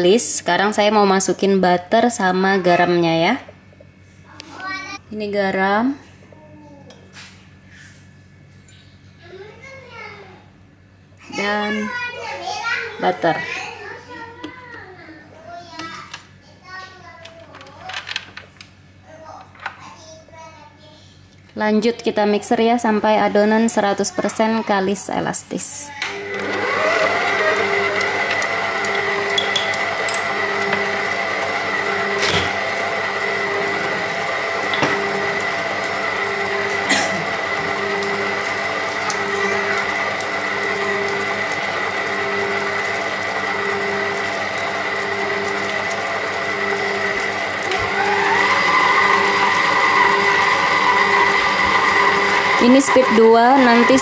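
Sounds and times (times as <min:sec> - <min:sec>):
stand mixer motor whine: 0:26.1 - 0:54.0.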